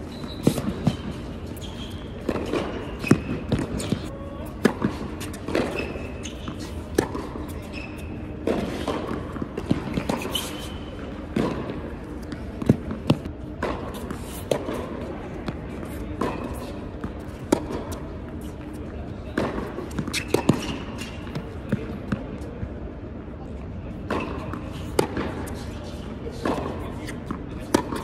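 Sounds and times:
tennis shoes squeaking: 0.0s - 14.9s, 15.7s - 19.0s, 19.6s - 22.0s
tennis ball bouncing: 0.2s - 22.2s, 24.1s - 25.6s, 26.3s - 28.0s
racquet striking tennis ball: 0.3s - 18.1s, 19.3s - 21.8s, 26.3s - 28.0s.

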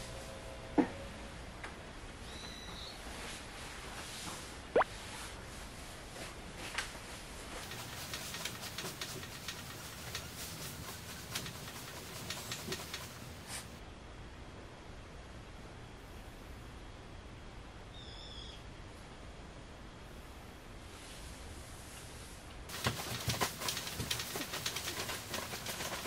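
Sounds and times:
wooden bed creaking and clicking: 7.6s - 13.4s, 22.7s - 26.0s.

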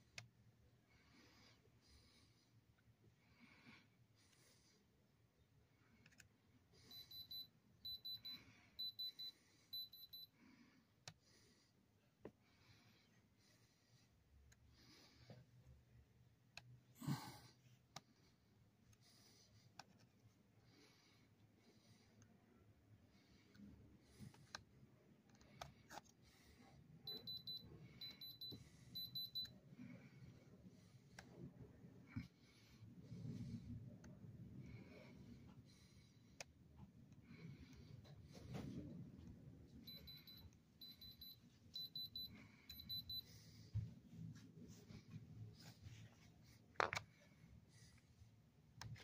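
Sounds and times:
electronic tester beeping: 6.9s - 10.3s, 27.1s - 29.5s, 39.8s - 43.3s.

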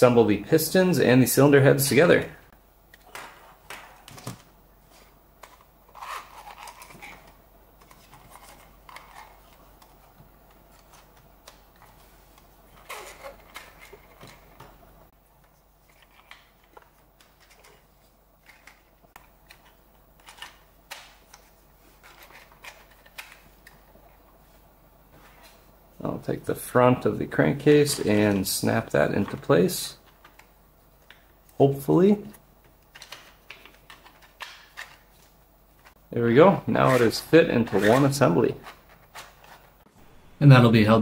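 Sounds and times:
plastic parts clicking and scraping: 5.4s - 10.1s, 12.8s - 14.6s, 15.8s - 23.8s, 32.9s - 35.1s.

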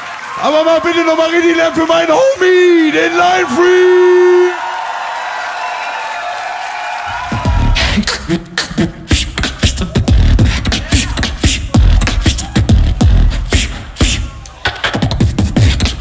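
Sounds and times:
vocal beatboxing: 7.3s - 16.0s.

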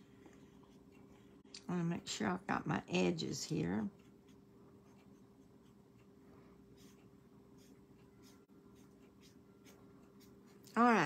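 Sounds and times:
faint steady hum: 0.0s - 11.0s
marker scratching on cardstock: 6.8s - 7.0s, 7.6s - 10.4s.

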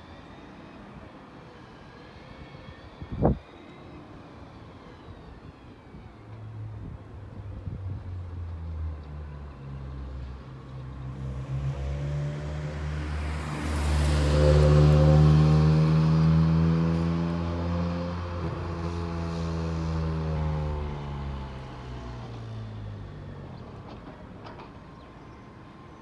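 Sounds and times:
car passing by: 5.9s - 25.1s.

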